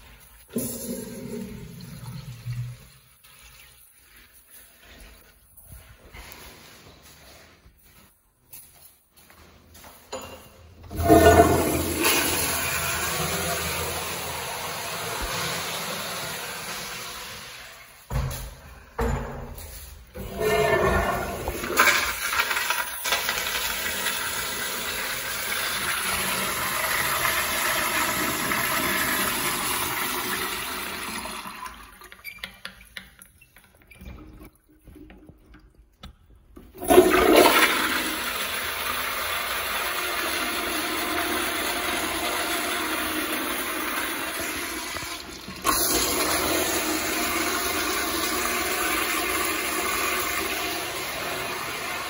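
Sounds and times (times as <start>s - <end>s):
water gurgling: 0.0s - 3.9s
toilet flush water rushing: 0.0s - 4.1s, 10.9s - 18.1s, 20.2s - 32.4s, 36.7s - 52.0s.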